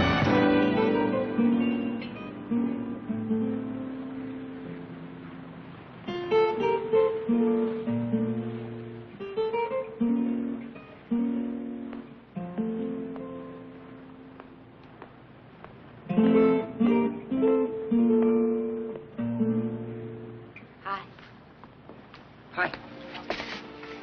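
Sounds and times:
full transition music cue: 0.0s - 3.1s
acoustic guitar plucked notes: 0.0s - 14.7s, 16.0s - 21.1s.

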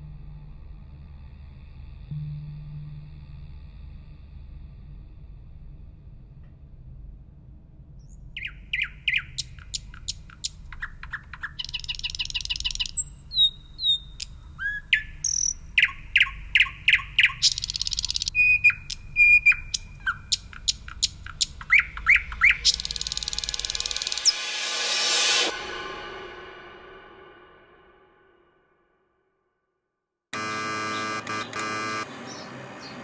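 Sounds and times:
low steady hum: 0.0s - 24.0s
nightingale singing: 8.0s - 24.4s.

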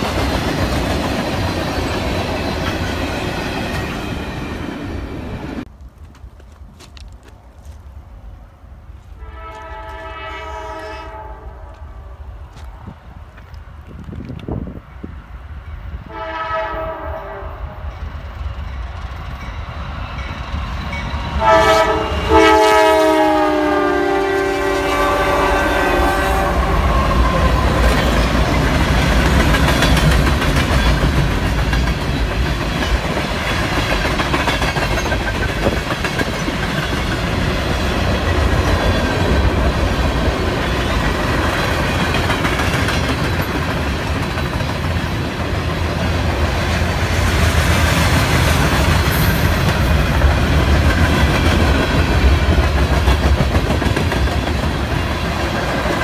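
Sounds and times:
locomotive air horn: 9.2s - 11.9s, 16.0s - 17.8s, 21.4s - 27.8s.

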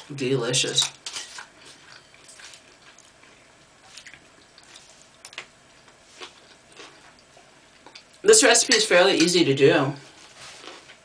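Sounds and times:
wet chewing and mouth sounds: 1.3s - 8.2s.

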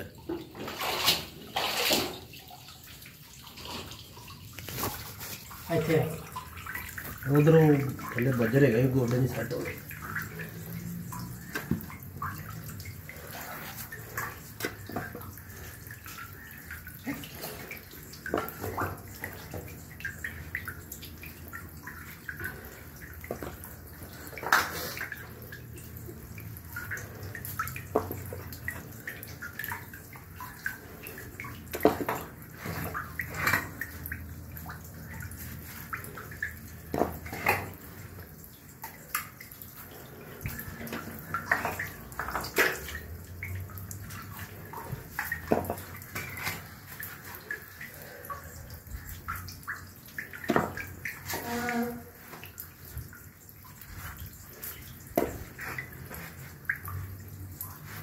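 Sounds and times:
sewage water running and splashing: 0.0s - 58.0s.

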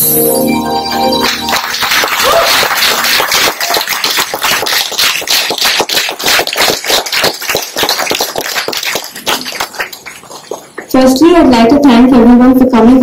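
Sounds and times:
audience applauding: 0.9s - 10.9s.

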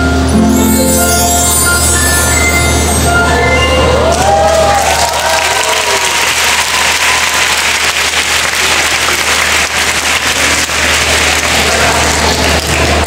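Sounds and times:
audience applauding: 3.8s - 13.0s.

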